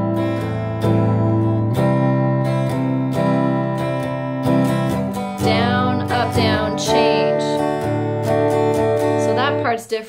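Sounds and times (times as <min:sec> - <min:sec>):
electric guitar strumming: 0:00.0 - 0:10.0
woman singing: 0:05.3 - 0:08.1, 0:09.0 - 0:10.0.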